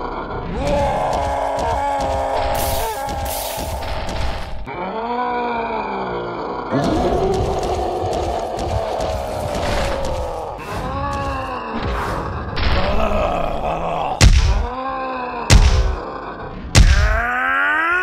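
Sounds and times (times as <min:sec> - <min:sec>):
man groaning and grunting: 0:00.5 - 0:03.9, 0:04.7 - 0:11.8, 0:12.6 - 0:18.0
heavy punch thuds: 0:14.2 - 0:14.6, 0:15.5 - 0:16.0, 0:16.8 - 0:17.1.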